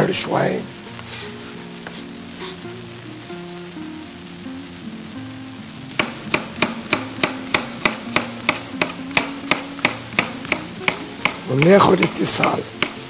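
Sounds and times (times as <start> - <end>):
knife chopping on cutting board: 6.0 - 13.0.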